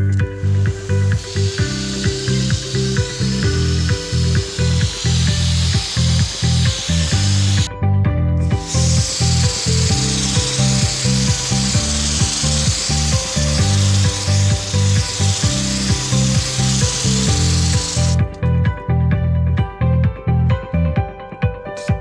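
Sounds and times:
hose spray hissing: 0.0s - 7.7s, 8.4s - 18.3s
music with steady beat: 0.0s - 22.0s.

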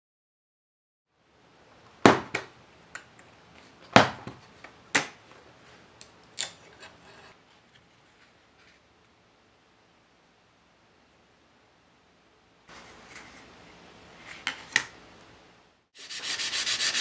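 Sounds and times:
soft rustling: 7.0s - 9.0s.

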